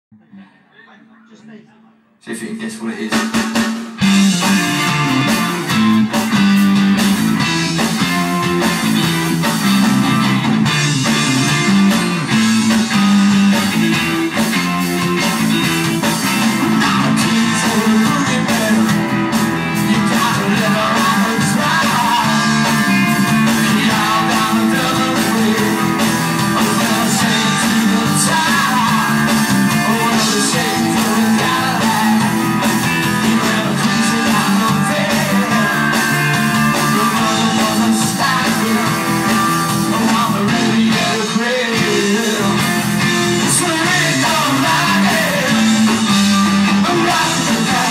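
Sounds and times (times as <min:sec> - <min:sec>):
drum kit: 0:02.9 - 0:47.9
electric guitars: 0:03.1 - 0:47.9
person singing: 0:15.4 - 0:46.1, 0:46.7 - 0:47.9.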